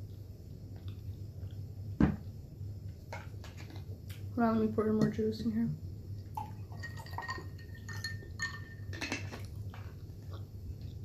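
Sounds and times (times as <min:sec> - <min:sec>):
tea pouring into a glass: 0:06.3 - 0:08.9
glass ringing: 0:06.8 - 0:09.2
glass clinks: 0:06.8 - 0:09.3.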